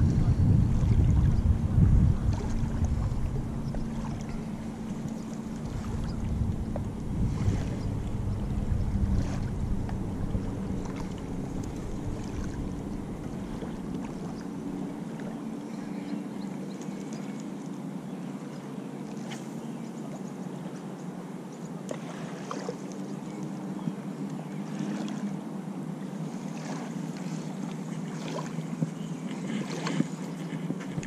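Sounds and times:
wind rumbling on microphone: 0:00.0 - 0:16.3
motorboat engine running: 0:00.0 - 0:31.0.

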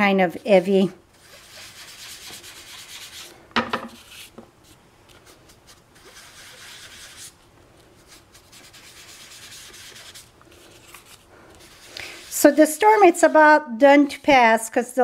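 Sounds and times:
foam sponge rubbing on cardstock: 0:00.4 - 0:03.3, 0:05.4 - 0:07.4, 0:08.0 - 0:13.0.

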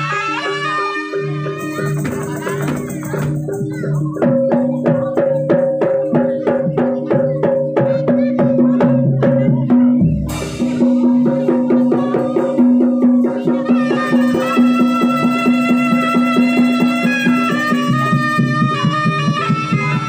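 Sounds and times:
fast struck percussion beat: 0:00.0 - 0:20.0
sustained melody instrument: 0:10.3 - 0:20.0.

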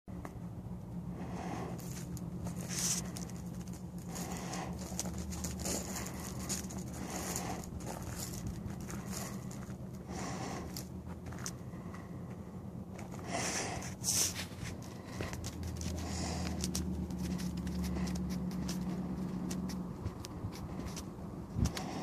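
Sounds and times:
steady low hum: 0:00.1 - 0:22.0
footsteps crunching on gravel: 0:01.8 - 0:22.0.

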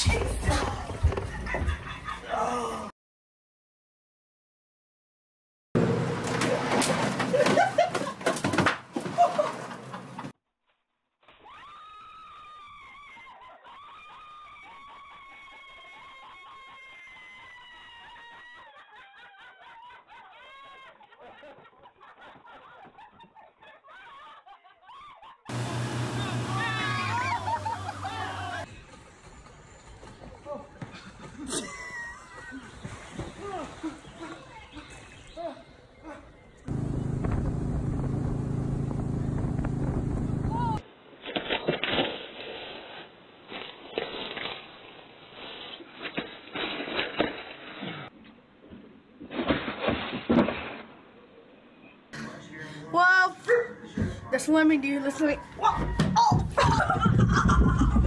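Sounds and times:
women laughing and squealing: 0:12.8 - 0:25.5, 0:26.4 - 0:28.7, 0:31.0 - 0:36.4, 0:55.3 - 0:58.0.

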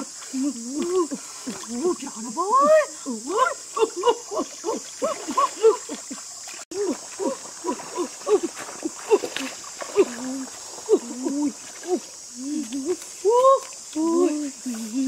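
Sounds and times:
women talking: 0:00.0 - 0:06.0, 0:10.0 - 0:15.0
steady high hiss: 0:00.0 - 0:15.0.

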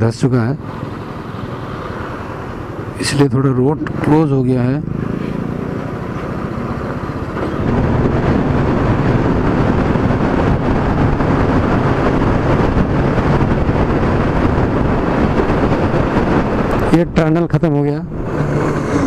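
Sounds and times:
motorcycle engine running: 0:03.8 - 0:16.9
wind noise: 0:04.8 - 0:19.0.

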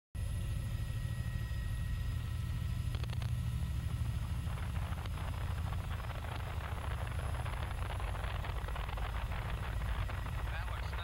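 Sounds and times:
helicopter engine and rotor drone: 0:00.2 - 0:11.0.

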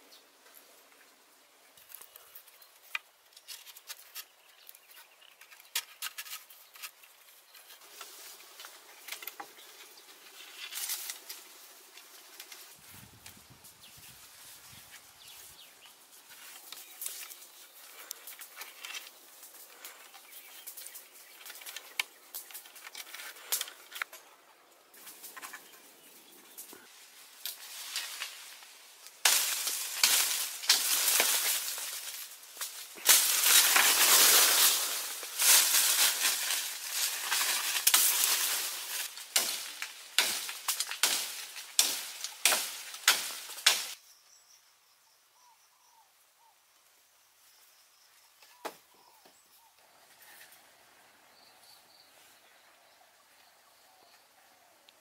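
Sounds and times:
leafy branches rustling: 0:00.0 - 0:44.0.

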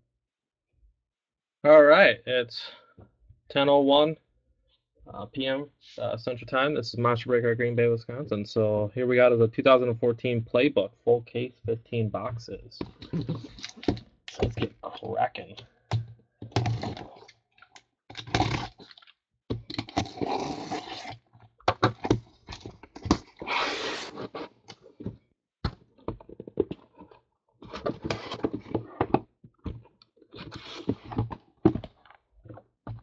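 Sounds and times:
knife scraping cardboard and tape: 0:18.2 - 0:18.9, 0:19.7 - 0:22.2, 0:23.2 - 0:24.6.

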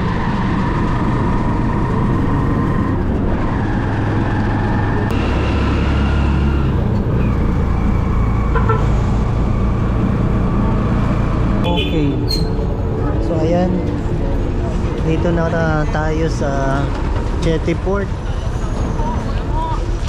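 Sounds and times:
road rumble: 0:00.0 - 0:20.0.

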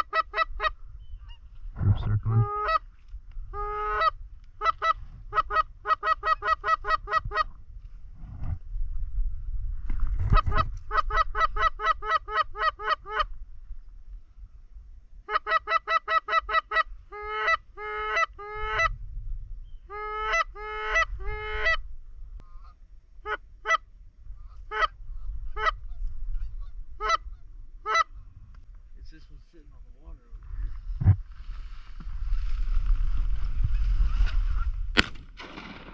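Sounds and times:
low rumble: 0:00.7 - 0:03.6, 0:29.7 - 0:35.8.

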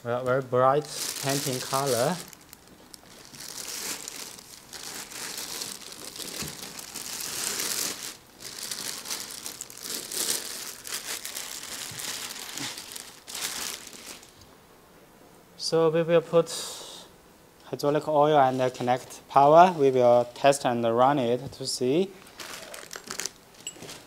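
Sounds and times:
plastic bag crinkling: 0:00.2 - 0:14.4, 0:22.2 - 0:24.0.

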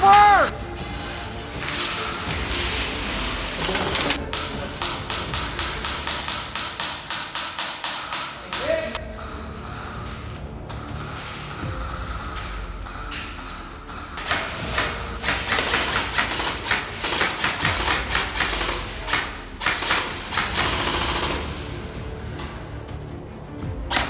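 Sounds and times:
airsoft guns firing: 0:02.4 - 0:09.0, 0:14.2 - 0:21.8.

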